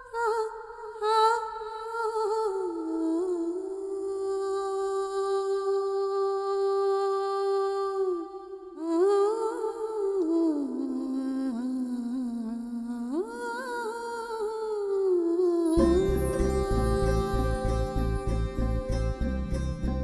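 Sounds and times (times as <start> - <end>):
woman humming: 15.8 - 19.1.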